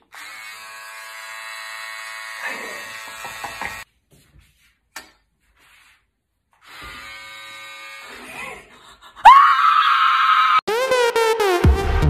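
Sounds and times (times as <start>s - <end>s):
electric hair clippers buzzing: 0.0s - 3.8s, 6.6s - 8.3s.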